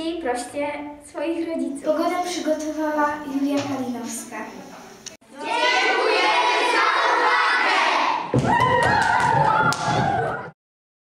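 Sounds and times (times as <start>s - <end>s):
children shouting and cheering: 5.3s - 10.5s.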